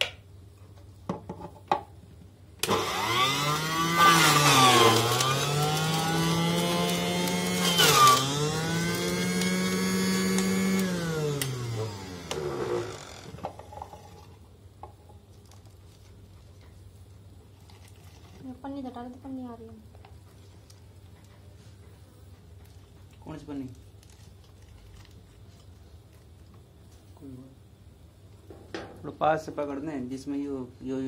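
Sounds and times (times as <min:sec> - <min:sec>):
juicer motor whine: 0:02.6 - 0:14.2.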